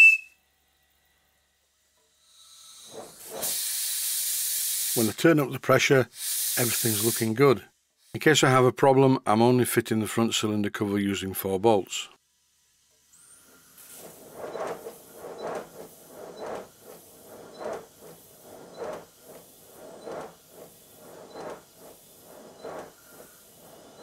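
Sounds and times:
model locomotive exhaust puffing: 0.0 - 8.7, 12.3 - 24.0
steady air hiss: 2.2 - 8.6, 13.1 - 24.0.

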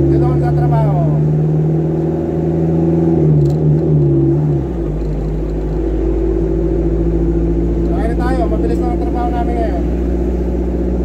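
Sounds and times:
truck engine humming: 0.0 - 11.0.

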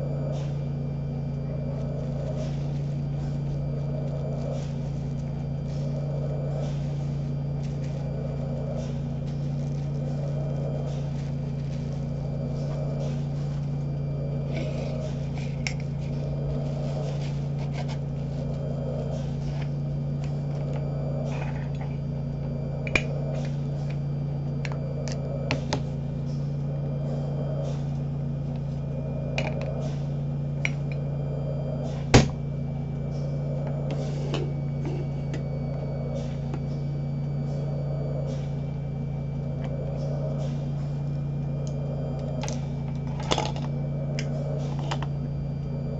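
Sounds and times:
soft whoosh of ventilator: 0.0 - 45.9
ventilator machine hum: 0.0 - 45.9.

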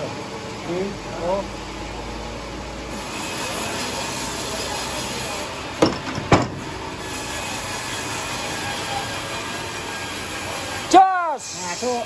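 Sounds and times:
steady machine hum: 0.0 - 12.0
log knocking on steel: 5.8 - 6.7.

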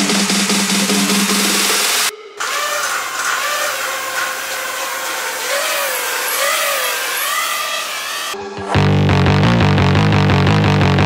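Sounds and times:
quadcopter motors whining: 0.8 - 8.8.

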